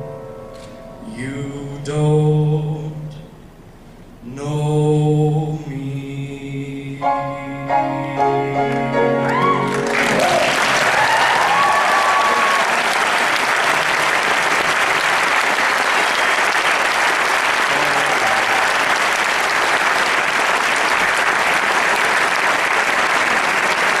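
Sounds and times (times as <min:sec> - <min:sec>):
audience applauding: 0:09.3 - 0:24.0.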